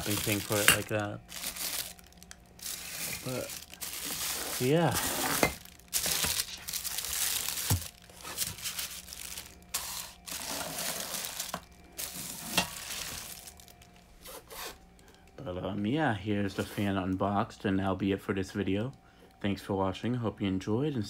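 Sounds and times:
plastic bags crinkling: 0.0s - 14.0s.

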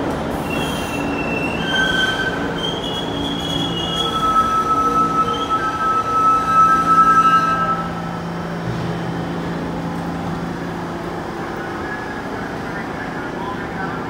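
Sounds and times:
subway train brakes squealing: 0.0s - 8.6s
stopped train humming: 0.0s - 14.0s.

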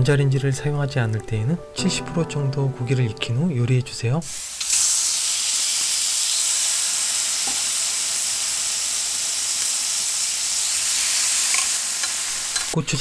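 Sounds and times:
pork sizzling on grill pan: 4.3s - 12.8s.

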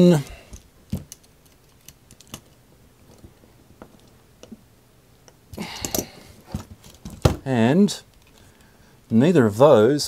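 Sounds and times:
plastic case clattering and rustling: 6.5s - 7.5s.

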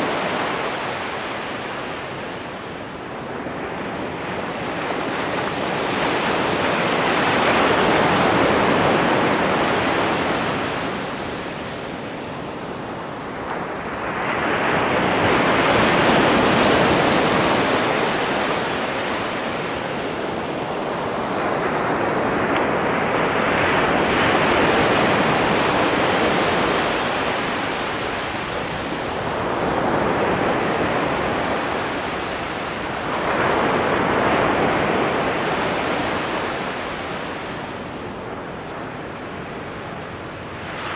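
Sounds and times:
waves breaking on sand: 0.0s - 40.9s.

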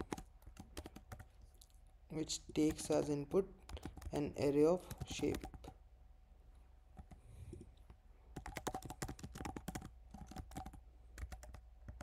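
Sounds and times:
typing on computer keyboard: 0.0s - 1.3s, 2.6s - 5.8s, 8.4s - 12.0s.

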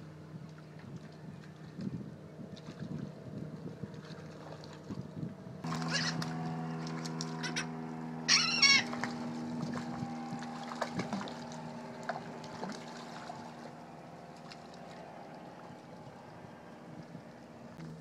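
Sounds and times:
low motor hum: 0.0s - 18.0s
gulls calling: 5.6s - 17.8s.

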